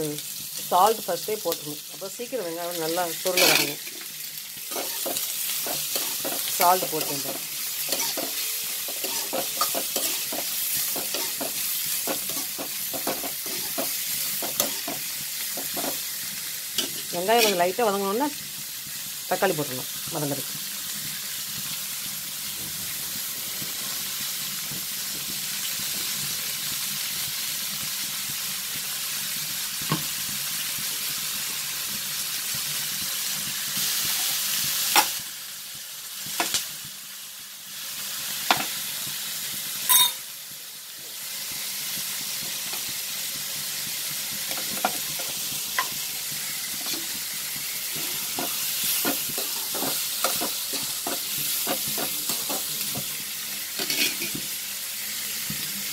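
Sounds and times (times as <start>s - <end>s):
onions sizzling in a wok: 0.0s - 55.9s
metal spatula scraping wok: 3.2s - 16.0s, 16.8s - 17.8s, 46.7s - 47.2s, 47.8s - 52.9s, 53.8s - 54.4s
sharp metal clinks: 39.9s - 40.2s.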